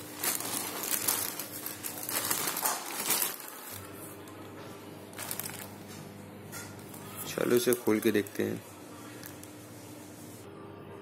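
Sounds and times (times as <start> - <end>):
plastic bag crinkling: 0.0 - 3.9, 5.1 - 6.0, 6.8 - 9.6.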